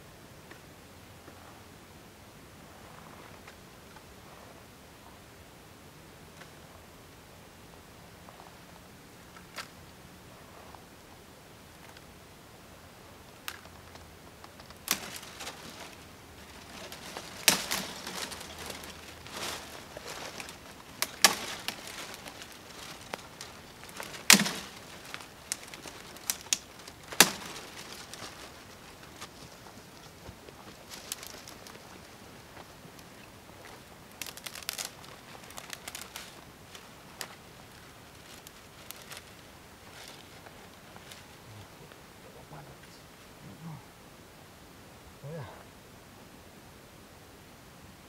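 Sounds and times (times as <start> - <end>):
dry branches rustling and scraping: 13.2 - 42.0
dry twigs snapping: 13.4 - 41.3.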